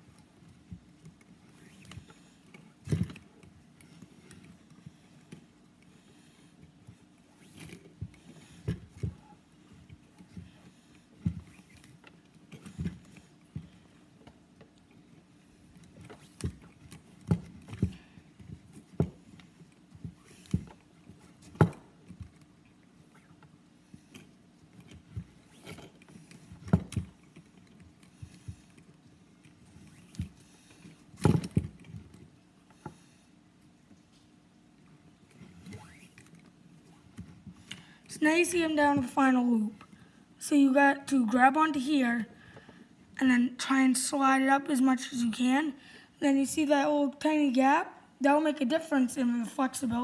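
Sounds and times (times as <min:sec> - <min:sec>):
faint steady hum: 0:00.0 - 0:50.0
cord rubbing: 0:00.1 - 0:34.2, 0:35.2 - 0:37.7.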